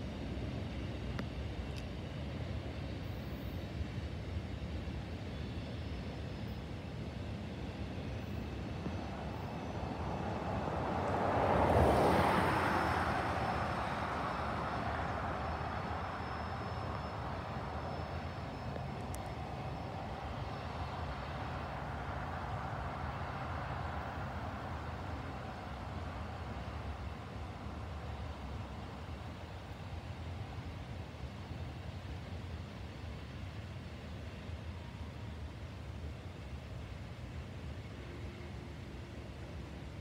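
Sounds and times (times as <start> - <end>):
distant freight train rumble: 0.0 - 40.0
pickup truck passing: 9.8 - 17.8.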